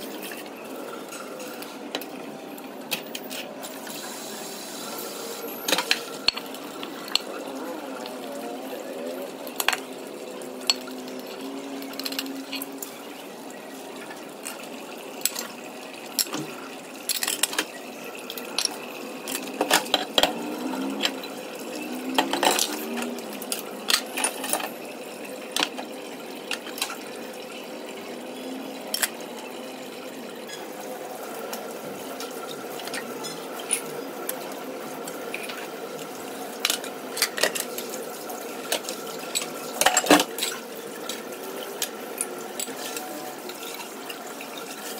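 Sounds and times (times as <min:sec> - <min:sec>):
running water: 0:00.0 - 0:44.9
utensils clinking against dishes: 0:05.6 - 0:07.5, 0:09.4 - 0:12.9, 0:15.2 - 0:24.8, 0:30.4 - 0:30.7, 0:36.5 - 0:38.0, 0:38.6 - 0:44.9.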